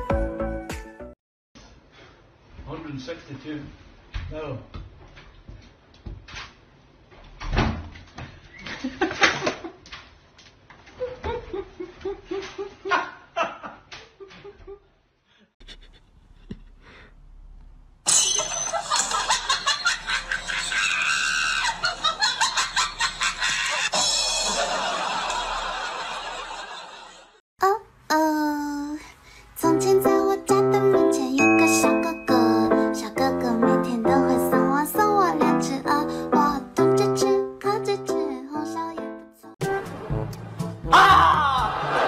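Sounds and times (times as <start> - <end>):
person laughing: 11.0 - 14.9, 15.6 - 17.0, 41.0 - 42.0.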